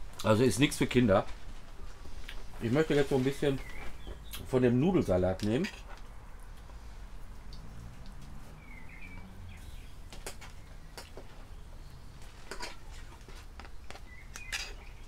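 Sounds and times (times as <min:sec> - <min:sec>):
bird chirping: 0:02.7 - 0:04.9, 0:08.5 - 0:12.6, 0:13.6 - 0:15.0.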